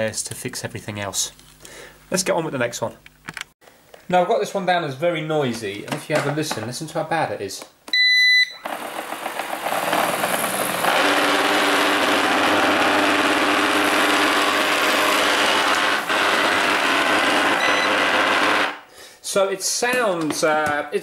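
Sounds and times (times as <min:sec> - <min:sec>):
robot vacuum motor whirring: 0:08.6 - 0:18.8
robot vacuum beeping: 0:17.4 - 0:18.7.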